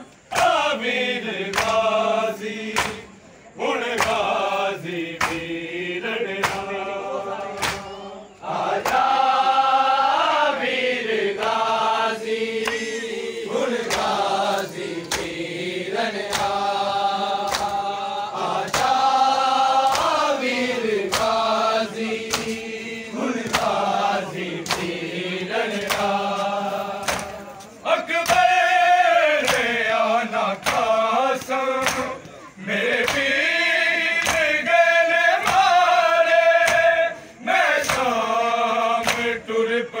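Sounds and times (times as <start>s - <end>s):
men chanting a lament: 0.0s - 40.0s
hands slapping chests: 0.1s - 0.6s, 1.4s - 2.1s, 2.7s - 3.2s, 3.9s - 5.6s, 6.3s - 6.8s, 7.4s - 8.0s, 8.7s - 9.2s, 12.6s - 28.6s, 29.2s - 34.6s, 35.3s - 35.8s, 36.4s - 36.9s, 37.8s - 38.3s, 39.0s - 39.4s.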